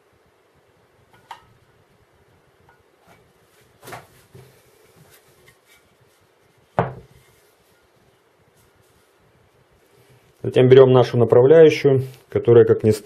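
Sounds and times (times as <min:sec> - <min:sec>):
soft knock: 0:06.8 - 0:07.1.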